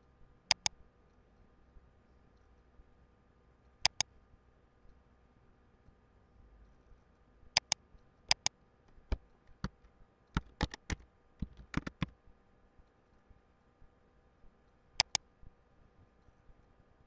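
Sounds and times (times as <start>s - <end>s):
keyboard keystrokes: 0.5s - 0.7s, 3.8s - 4.0s, 7.6s - 8.5s, 9.1s - 12.1s, 15.0s - 15.2s
mouse clicks: 0.5s - 0.8s, 3.8s - 4.1s, 7.6s - 12.1s, 15.0s - 15.3s.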